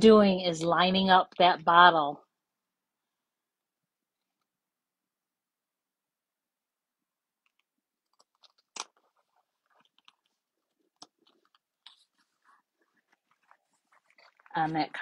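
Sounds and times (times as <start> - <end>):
paper crinkling and clicking: 7.4 - 15.0.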